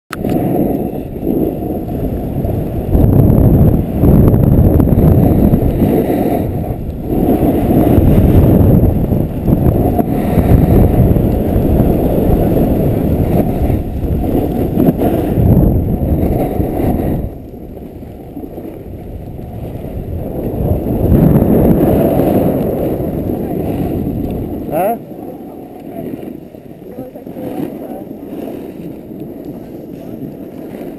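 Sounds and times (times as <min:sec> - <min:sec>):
wind buffeting microphone: 0:00.1 - 0:30.9.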